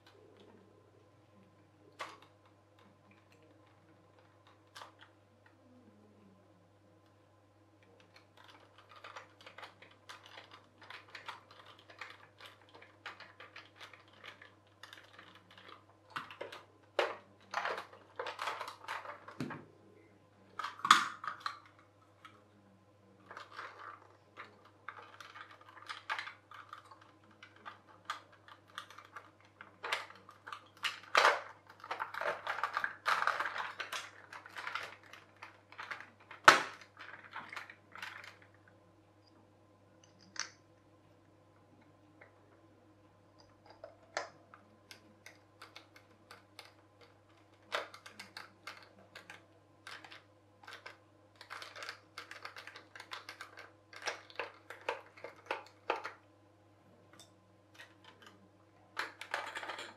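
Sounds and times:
faint low hum: 0:00.0 - 0:59.9
plastic toy parts clicking: 0:01.9 - 0:05.6, 0:07.9 - 0:19.5, 0:23.2 - 0:38.5, 0:43.4 - 0:56.2, 0:59.0 - 0:59.9
plastic parts snapping: 0:20.6 - 0:22.3, 0:23.3 - 0:38.5, 0:43.4 - 0:56.2.

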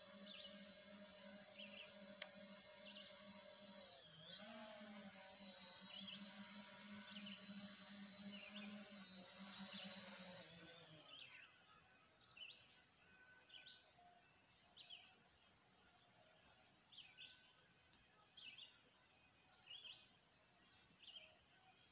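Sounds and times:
drone propellers whining: 0:00.0 - 0:11.5.

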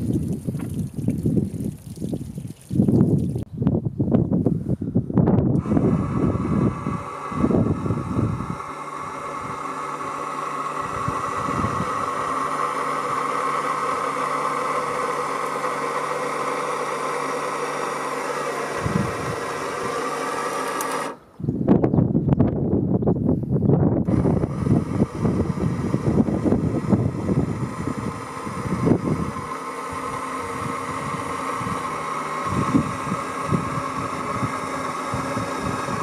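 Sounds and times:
wind buffeting microphone: 0:00.0 - 0:09.7, 0:10.8 - 0:12.5, 0:18.7 - 0:20.0, 0:21.4 - 0:36.0
electric tilt motor whining: 0:04.4 - 0:21.6, 0:23.9 - 0:36.0.

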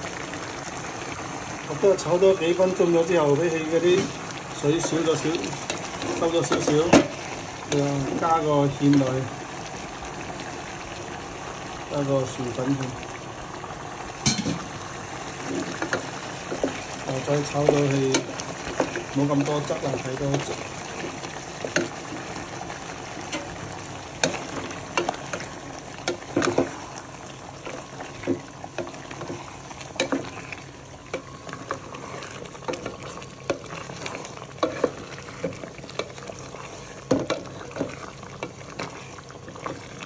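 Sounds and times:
sauce sizzling and bubbling: 0:00.0 - 0:40.0
spatula knocking and scraping pan: 0:04.8 - 0:07.8, 0:26.1 - 0:26.8, 0:32.7 - 0:36.2, 0:37.0 - 0:39.0.

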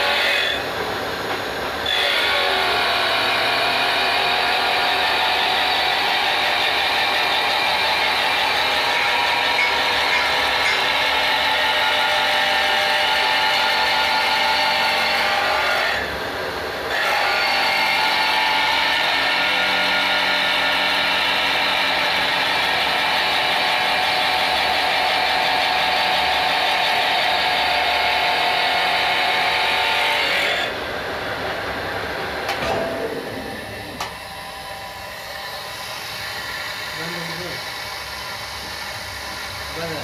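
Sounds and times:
shrill grinding wheel: 0:00.0 - 0:00.9, 0:01.5 - 0:16.2, 0:16.9 - 0:30.8
machine motors running: 0:00.0 - 0:40.0.

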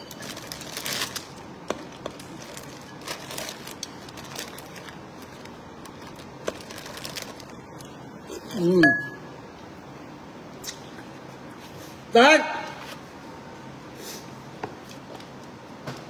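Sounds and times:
plastic bags crinkling: 0:00.0 - 0:08.0.

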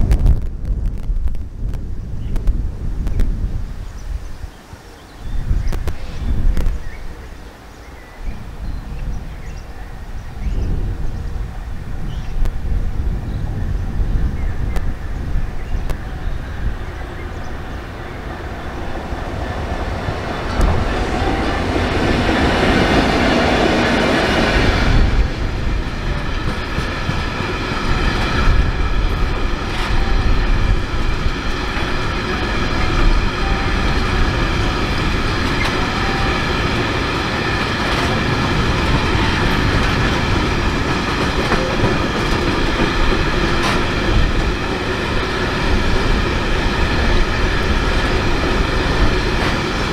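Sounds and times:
diesel locomotive passing: 0:05.9 - 0:49.9
wheels clacking over rail joints: 0:17.4 - 0:49.9
wagons rolling on rails: 0:25.0 - 0:49.9
ringing tones: 0:27.8 - 0:38.3.

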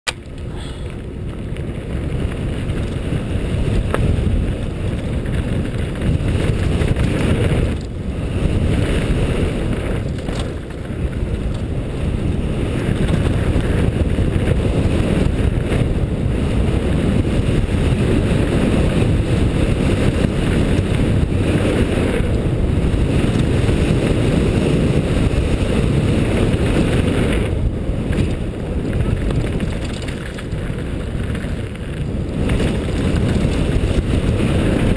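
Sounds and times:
wind rumble on microphone: 0:00.1 - 0:34.9
tyres rolling over gravel: 0:00.2 - 0:15.8, 0:25.8 - 0:34.9.

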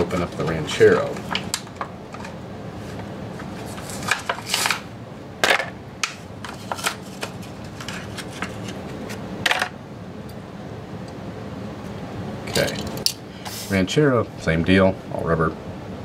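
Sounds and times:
packaging crinkling and ripping: 0:06.5 - 0:09.2.

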